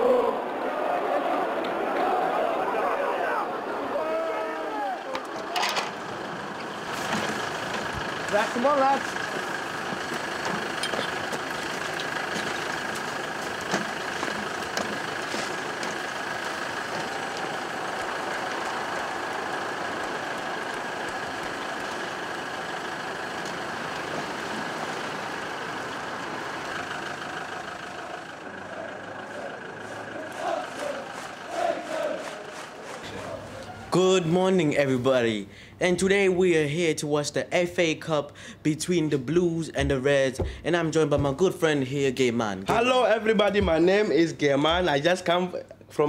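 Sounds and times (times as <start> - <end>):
minibus engine idling: 2.9 - 34.3, 39.7 - 41.4.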